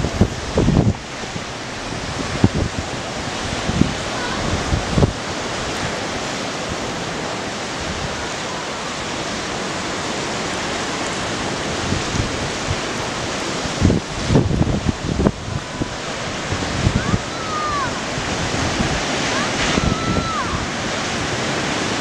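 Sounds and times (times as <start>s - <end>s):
surf breaking over rocks: 0.0s - 22.0s
wind buffeting microphone: 0.0s - 22.0s.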